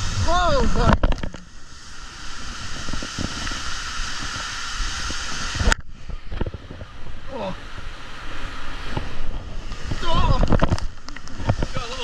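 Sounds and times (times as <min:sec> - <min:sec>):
rushing water: 0:00.0 - 0:12.0
wind on microphone: 0:00.0 - 0:12.0.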